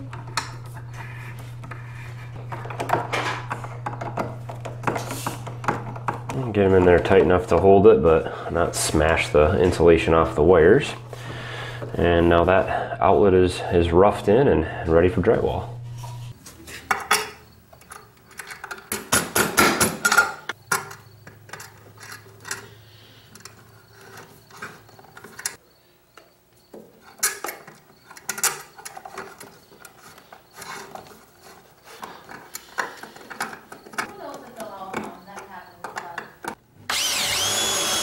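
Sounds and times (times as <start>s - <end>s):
screwdriver turning screw: 36.9s - 38.0s.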